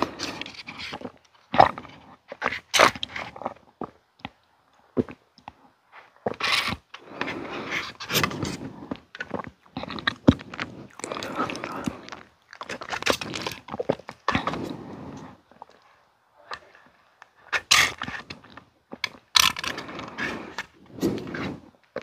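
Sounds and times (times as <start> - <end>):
swallowing: 7.0 - 17.0.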